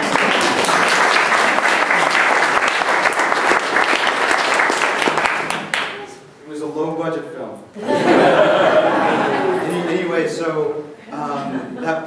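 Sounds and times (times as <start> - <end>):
audience clapping: 0.0 - 6.1.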